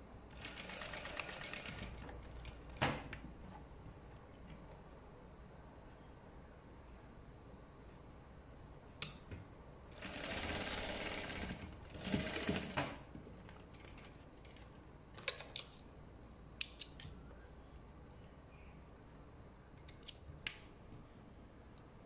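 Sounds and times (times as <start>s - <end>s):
sewing machine stitching: 0.3s - 2.1s, 9.9s - 13.0s.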